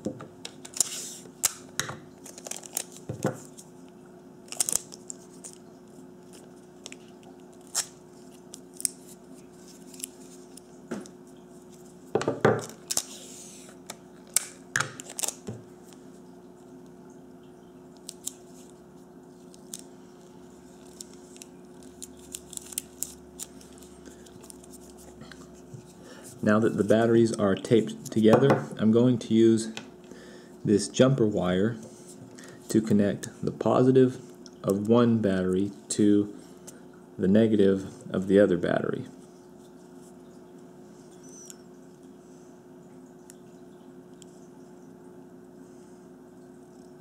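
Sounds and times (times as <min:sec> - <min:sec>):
faint steady hum: 0:00.0 - 0:47.0
tape clicks and crinkles: 0:00.4 - 0:11.9, 0:12.6 - 0:16.0, 0:18.0 - 0:18.8, 0:19.4 - 0:25.8
tape ripping: 0:06.9 - 0:10.6, 0:14.3 - 0:15.5.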